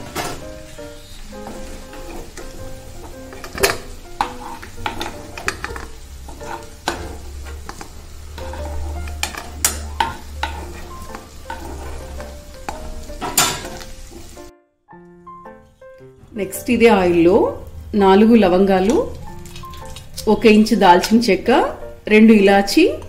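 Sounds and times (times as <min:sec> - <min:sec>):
oil sizzling: 0:00.0 - 0:23.0
spoon scraping and clinking in pan: 0:01.4 - 0:14.3.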